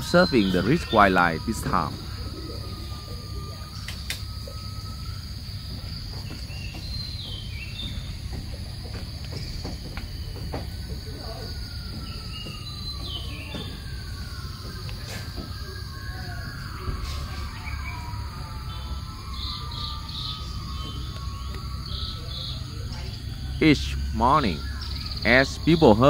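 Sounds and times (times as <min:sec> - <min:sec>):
bird chirping: 0:00.0 - 0:26.0
high-pitched insect chorus: 0:00.0 - 0:26.0.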